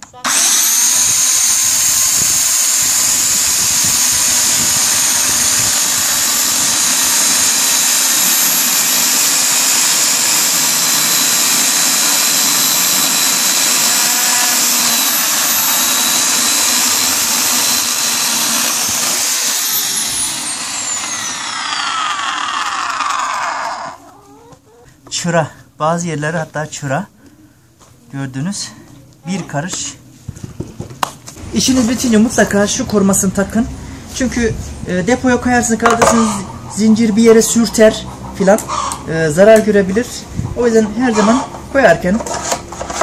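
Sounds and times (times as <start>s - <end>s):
electric chainsaw cutting log: 0.0s - 24.0s, 35.8s - 36.4s, 41.1s - 43.0s.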